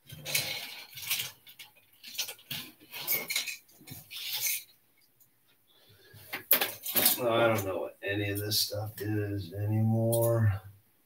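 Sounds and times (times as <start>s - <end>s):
plastic toy pieces clattering: 0.0s - 4.7s, 6.4s - 7.2s.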